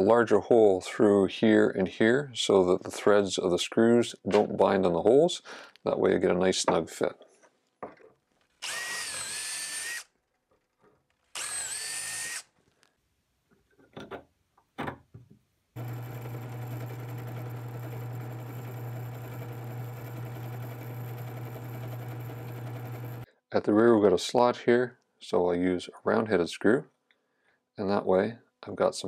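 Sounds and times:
drill press motor humming: 8.6s - 10.0s, 11.4s - 12.4s, 15.8s - 23.2s
cordless drill boring wood: 8.6s - 10.1s, 11.3s - 12.5s, 15.8s - 23.2s.

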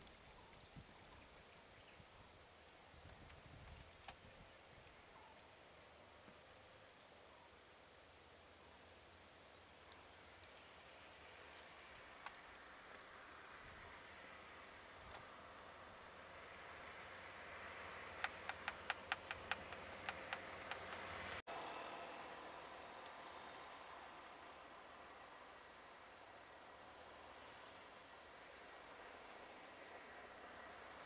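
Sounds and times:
passing vehicle road noise: 12.6s - 31.0s
sharp clicks or snaps: 18.2s - 21.4s.

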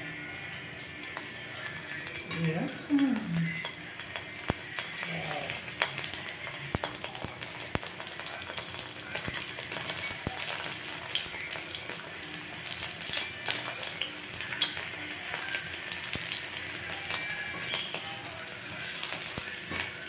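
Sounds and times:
fish sizzling in oil: 0.8s - 20.0s.

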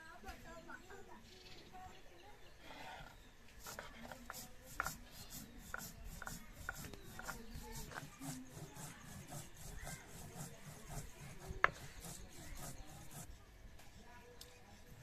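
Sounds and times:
stone grinding on stone: 2.9s - 13.3s.

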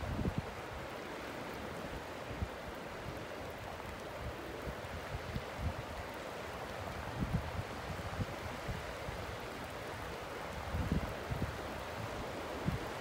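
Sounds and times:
wind rumbling on microphone: 0.0s - 1.1s, 1.7s - 13.0s
river rushing with ice: 0.0s - 13.0s.

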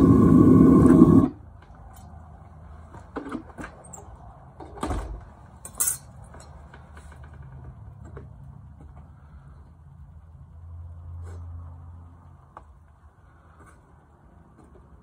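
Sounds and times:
loud steady roar: 0.0s - 1.4s
light metallic clinks and knocks: 3.4s - 9.1s.

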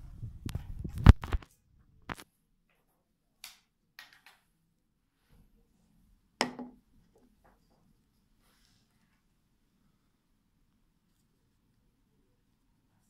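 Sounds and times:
faint plastic crackles: 0.4s - 2.8s.

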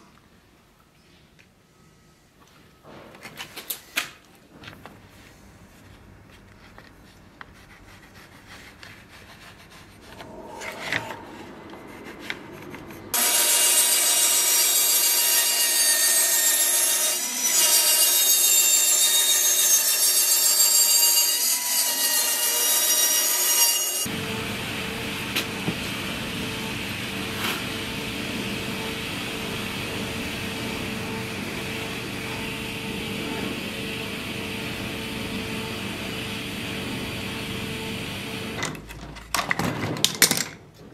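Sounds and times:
bandsaw cutting wood: 10.0s - 24.1s.

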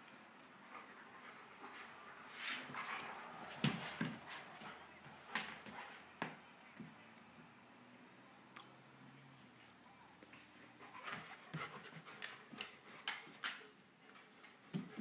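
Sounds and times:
animals scuffling on tile floor: 0.7s - 6.4s, 10.2s - 15.0s.

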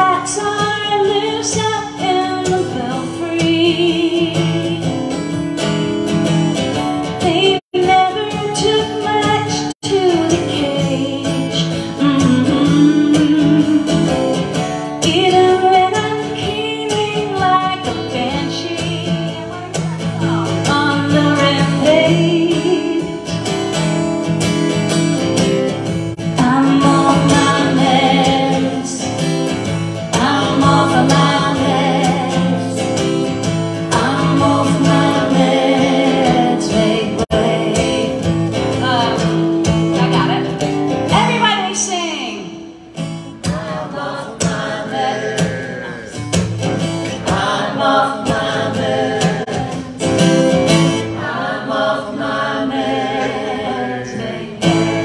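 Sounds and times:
acoustic guitars strummed: 0.0s - 55.0s
person singing: 26.2s - 29.4s, 30.1s - 33.2s, 33.8s - 39.4s, 43.4s - 46.4s.

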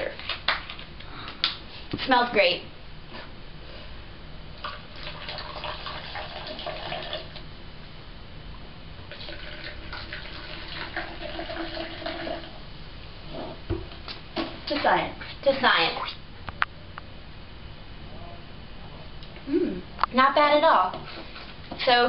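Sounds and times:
soda pouring into plastic cups: 4.6s - 7.4s, 9.1s - 12.6s.

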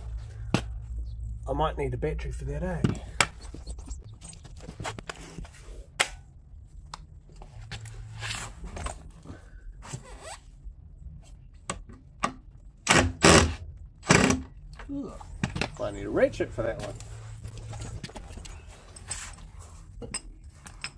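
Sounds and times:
tool belt rustling and clinking: 16.7s - 20.9s.

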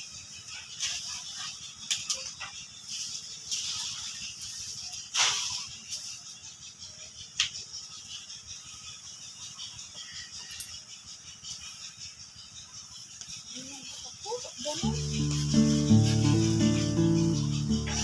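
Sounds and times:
steady high hiss: 14.8s - 18.0s.

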